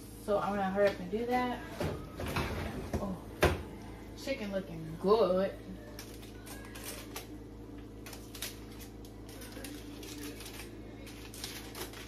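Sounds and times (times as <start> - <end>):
low steady hum: 0.0 - 12.0
aluminium foil crinkling: 5.8 - 12.0.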